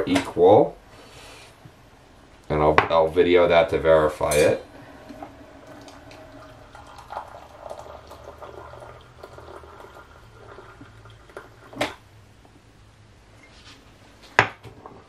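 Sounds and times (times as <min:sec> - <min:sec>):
steady low hum: 0:00.0 - 0:14.4
hot water pouring into cup: 0:04.7 - 0:12.0.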